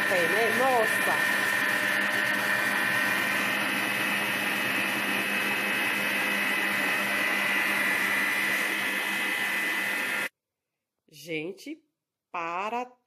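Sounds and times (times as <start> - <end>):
stand mixer motor humming: 0.0 - 10.3.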